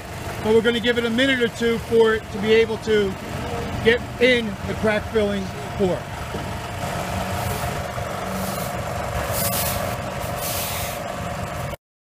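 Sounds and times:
machine engine running: 0:00.0 - 0:11.8
bursts of hissing: 0:08.4 - 0:11.0.

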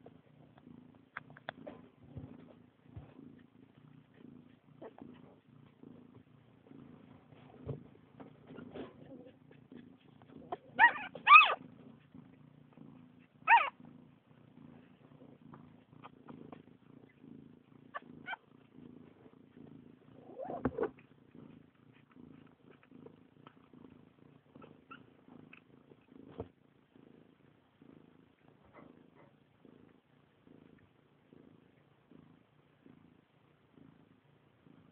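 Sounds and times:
cat purring: 0:00.0 - 0:34.9
puppies squeaking: 0:10.8 - 0:11.6.

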